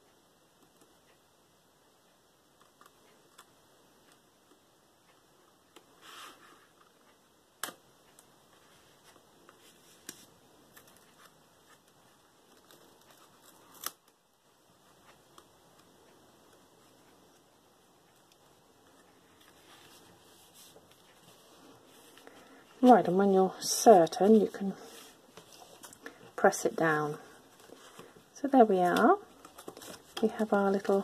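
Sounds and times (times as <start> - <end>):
paper rustling: 28.9 - 30.5.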